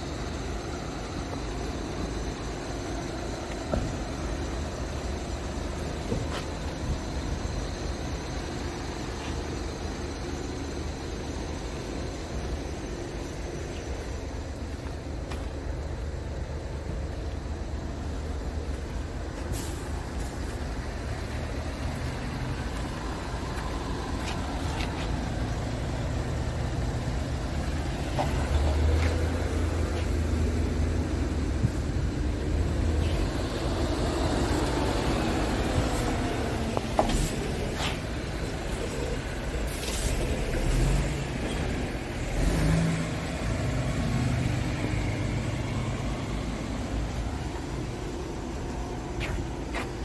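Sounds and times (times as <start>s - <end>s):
diesel truck engine idling: 0.0s - 50.0s
air brake hisses: 19.5s - 20.0s.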